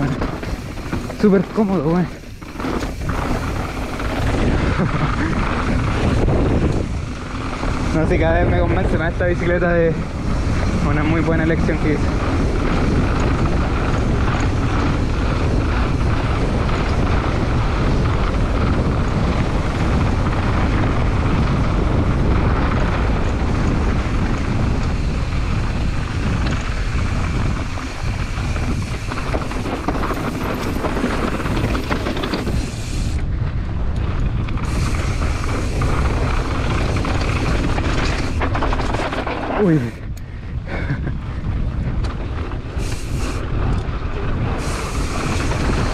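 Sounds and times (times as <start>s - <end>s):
mountain bike rattling: 0.0s - 45.9s
tyres rumbling over dirt: 0.0s - 45.9s
wind on microphone: 0.0s - 45.9s.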